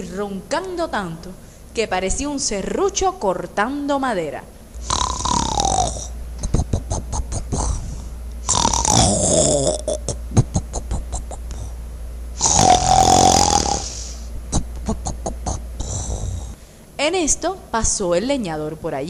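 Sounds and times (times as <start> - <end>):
cartoon snoring: 4.8 - 11.8, 12.4 - 16.6.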